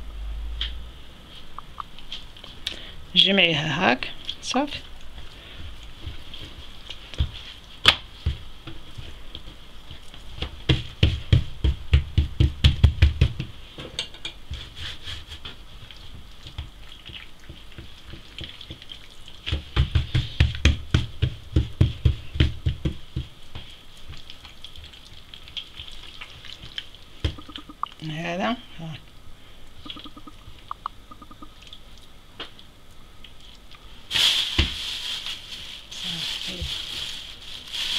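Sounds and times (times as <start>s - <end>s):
quick soft thumps of dough: 5.5s - 13.8s, 15.4s - 24.2s.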